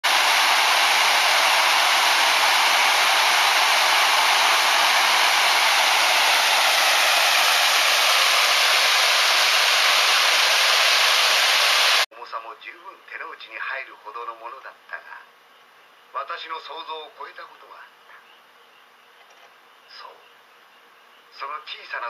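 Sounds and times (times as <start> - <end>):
small waterfall rushing: 0.0 - 12.1.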